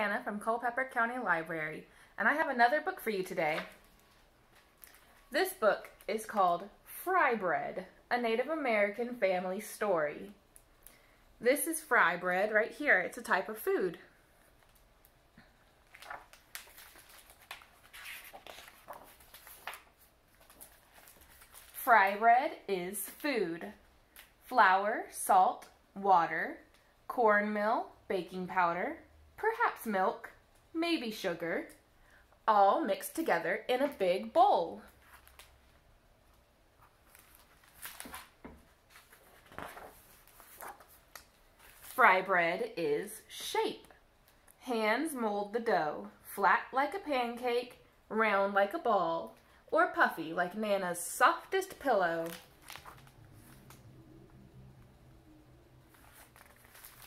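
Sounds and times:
book pages rustling: 0:03.5 - 0:05.3, 0:15.7 - 0:22.2, 0:34.8 - 0:42.0, 0:51.7 - 0:55.0, 0:55.8 - 0:57.0.

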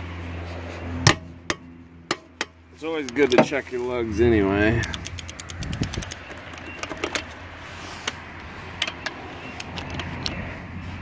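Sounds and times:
torque wrench clicking: 0:04.8 - 0:07.3.

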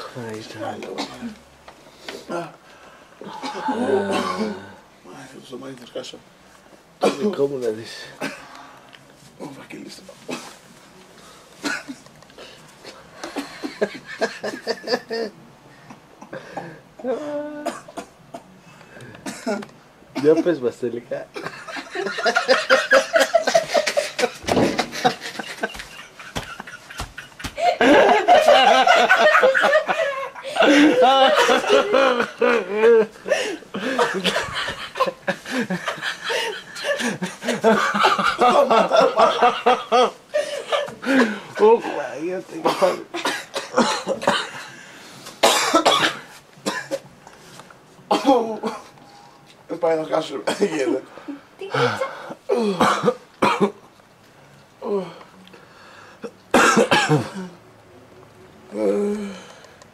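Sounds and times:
person coughing: 0:03.4 - 0:04.7, 0:42.6 - 0:44.6, 0:45.4 - 0:47.0, 0:48.1 - 0:48.9, 0:50.4 - 0:50.9, 0:51.7 - 0:53.8, 0:56.5 - 0:57.6
laughter in rapid bursts: 0:21.4 - 0:33.1, 0:33.8 - 0:40.9.

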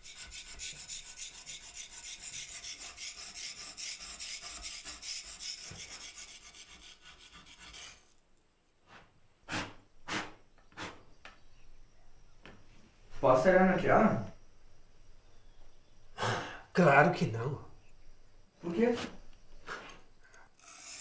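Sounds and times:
hand tool filing a workpiece: 0:00.0 - 0:08.1, 0:20.6 - 0:21.0.

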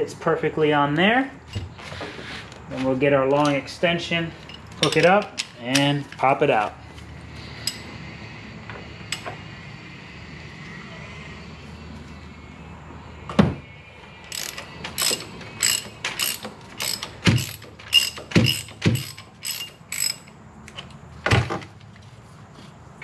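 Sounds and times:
ratchet wrench clicking: 0:04.4 - 0:06.2, 0:07.6 - 0:07.8, 0:14.3 - 0:21.0.

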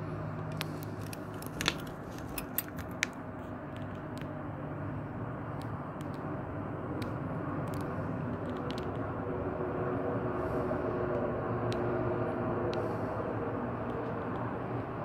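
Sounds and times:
distant engine rumble: 0:00.0 - 0:15.0.

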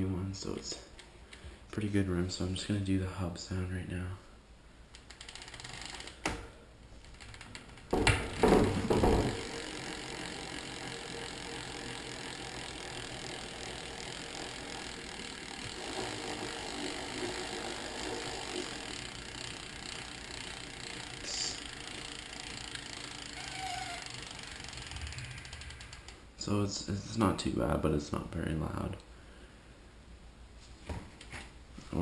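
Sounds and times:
freehub pawls ratcheting: 0:04.9 - 0:06.3, 0:07.0 - 0:26.2
bicycle wheel knocks: 0:07.4 - 0:10.1.

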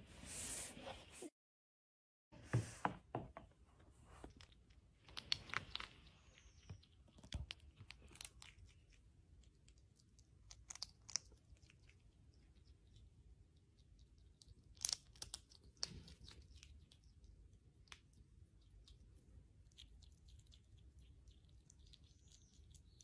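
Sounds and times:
animal chewing with crunches: 0:04.3 - 0:17.2.

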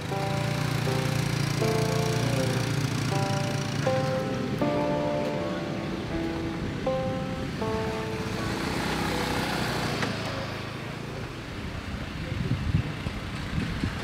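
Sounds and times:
music: 0:00.0 - 0:09.2
scooter engine running: 0:00.0 - 0:11.2.

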